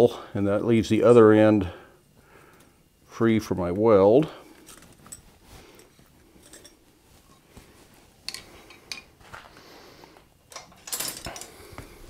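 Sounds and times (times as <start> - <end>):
metal bars clinking on anvil: 10.6 - 11.6.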